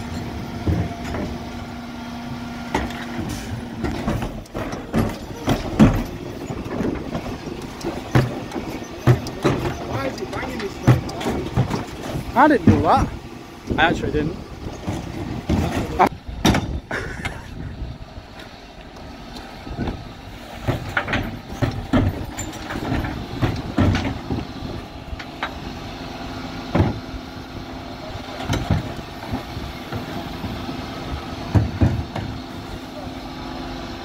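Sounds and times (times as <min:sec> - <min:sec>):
truck running hum: 0:00.0 - 0:34.0
plastic bins knocking and banging: 0:02.7 - 0:13.1, 0:20.6 - 0:24.5.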